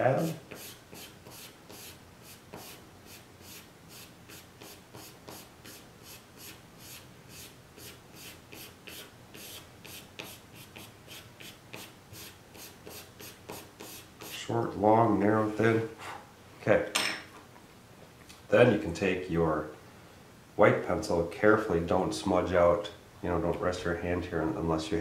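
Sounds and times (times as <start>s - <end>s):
pencil scratching on paper: 0.2s - 14.4s.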